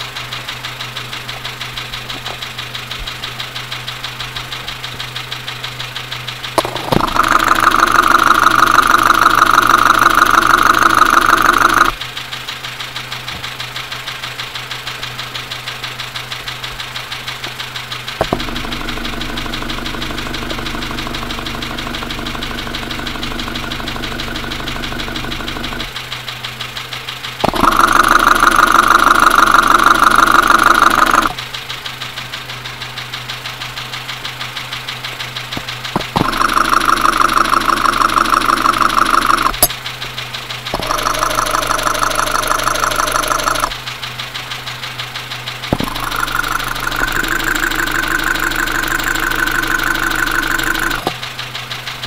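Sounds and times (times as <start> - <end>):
engine idling with knocking: 0.0 - 52.0
clicks: 40.7 - 43.8, 45.7 - 51.2.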